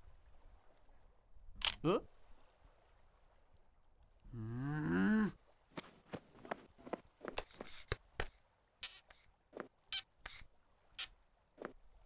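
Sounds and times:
man groaning: 0:04.3 - 0:05.4.

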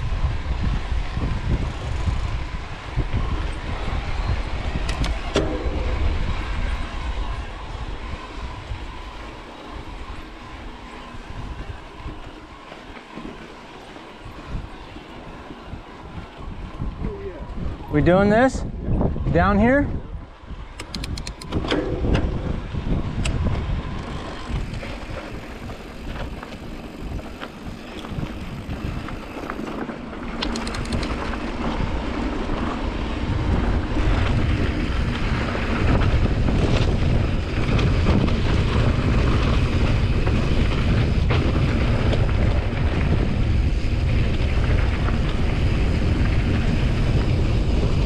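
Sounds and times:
bike tyres rolling on gravel: 0:00.0 - 0:20.8, 0:21.5 - 0:48.0
wind buffeting microphone: 0:00.0 - 0:48.0
sharp ticks: 0:20.8 - 0:21.6, 0:30.4 - 0:31.2.

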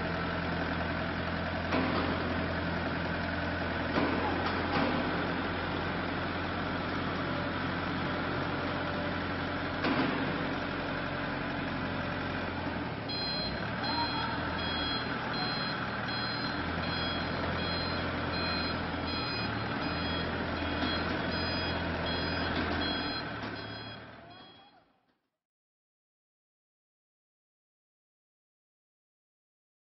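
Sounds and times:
diesel forklift engine running: 0:00.0 - 0:24.7
reversing alarm beeping: 0:13.1 - 0:24.9.

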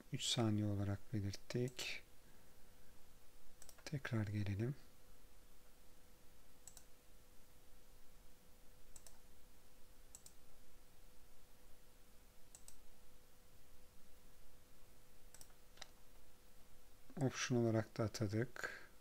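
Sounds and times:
faint room hiss: 0:00.0 - 0:19.0
thin steady hum: 0:00.0 - 0:19.0
sharp computer clicks: 0:03.6 - 0:04.0, 0:06.6 - 0:06.9, 0:08.9 - 0:09.2, 0:10.1 - 0:10.4, 0:12.5 - 0:12.9, 0:15.3 - 0:16.0.

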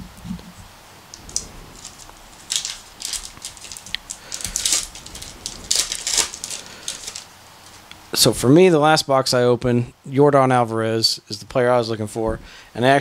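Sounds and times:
plastic wrapper crinkling: 0:01.1 - 0:08.0.

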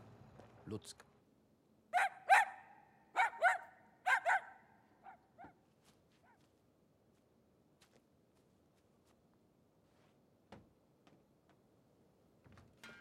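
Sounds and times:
dog barking: 0:01.9 - 0:05.6.

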